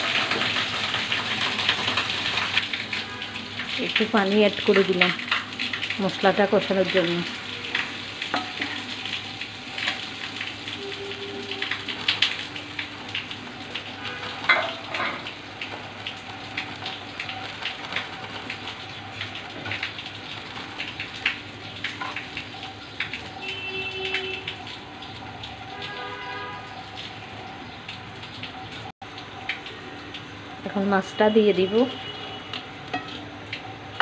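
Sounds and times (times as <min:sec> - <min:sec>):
masala sizzling in a pan: 0:00.0 - 0:03.6, 0:05.2 - 0:23.6.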